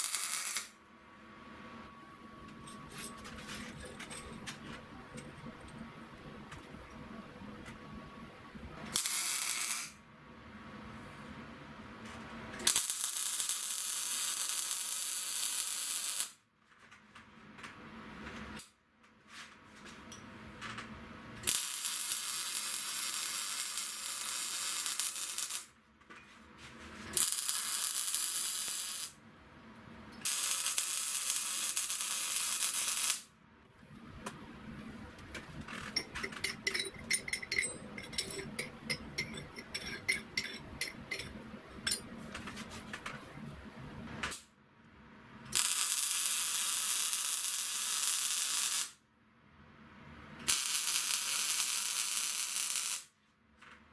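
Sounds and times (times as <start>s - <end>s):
welding arc crackling and hissing: 0.0s - 0.7s, 9.0s - 10.0s, 12.7s - 16.4s, 21.4s - 25.7s, 27.1s - 29.2s, 30.2s - 33.3s, 45.6s - 49.0s, 50.5s - 53.1s
light metallic ticks and taps: 35.9s - 42.0s.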